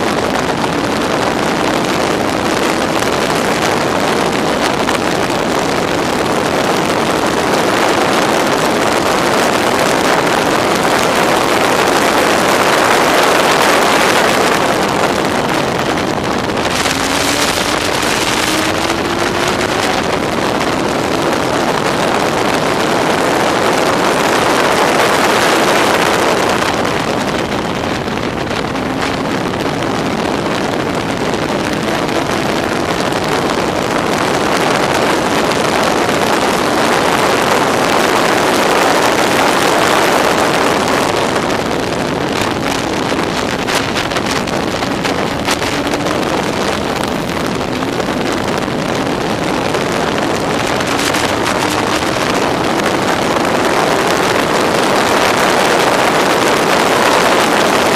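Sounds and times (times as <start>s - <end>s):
wind noise on microphone: 0.0s - 57.9s
racing car engine revving: 8.9s - 27.1s.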